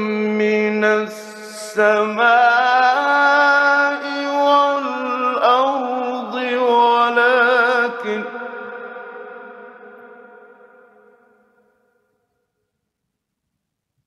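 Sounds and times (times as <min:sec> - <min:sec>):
man reciting melodically: 0:00.0 - 0:09.9.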